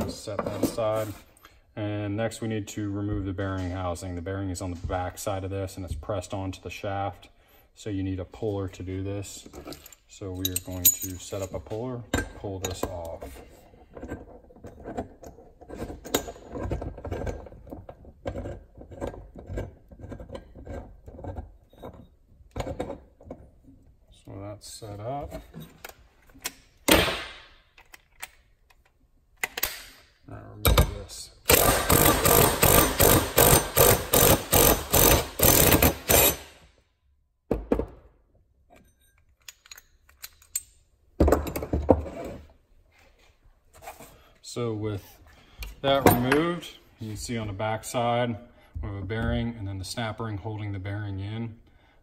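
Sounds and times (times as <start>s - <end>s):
impact wrench hammering: 30.7s - 36.6s
metal clicks and clanks: 38.7s - 40.8s.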